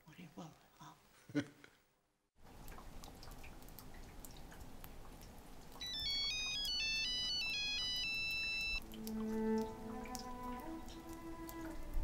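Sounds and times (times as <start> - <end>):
phone ringtone melody: 5.8 - 8.8.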